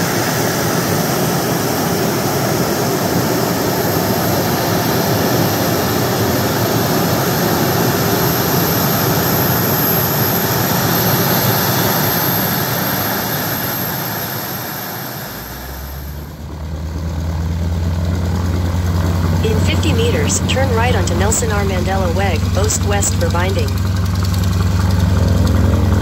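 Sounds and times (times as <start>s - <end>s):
high-pitched engine whine: 0.0s - 26.0s
jet engines running: 19.0s - 26.0s.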